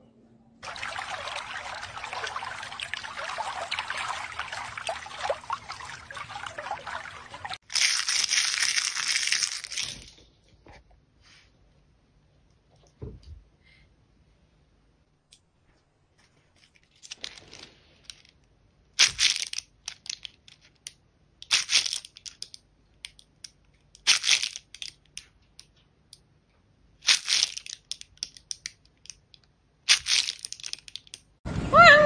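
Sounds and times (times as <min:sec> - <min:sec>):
crisp crunching: 0:07.6 - 0:10.1.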